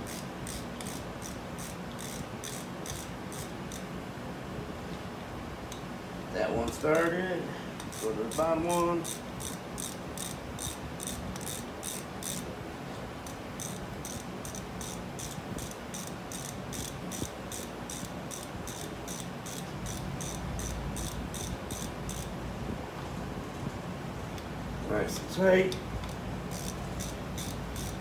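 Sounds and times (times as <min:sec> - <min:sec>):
cricket chirping: 0:13.6 - 0:22.3.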